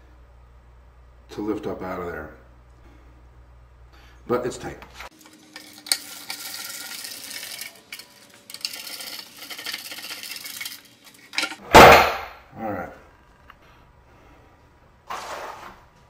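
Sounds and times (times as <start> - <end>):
screwdriver scratchy grinding: 5.0 - 11.6.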